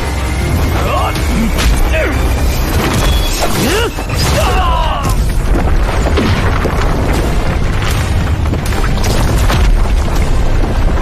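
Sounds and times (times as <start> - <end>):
booms: 2.8 - 11.0
deep rumble: 4.3 - 11.0.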